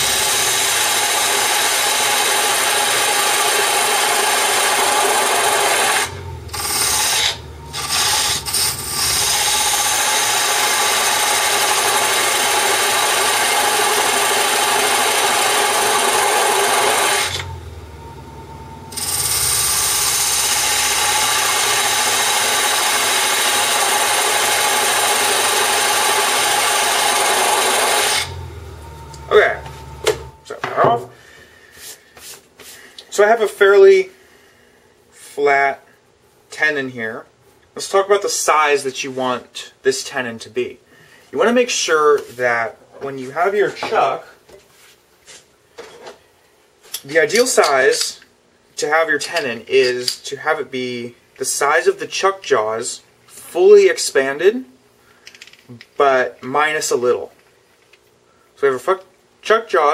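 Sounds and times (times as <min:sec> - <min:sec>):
parting tool scraping spinning wood: 0:00.0 - 0:17.6
wood lathe running hum: 0:00.0 - 0:30.5.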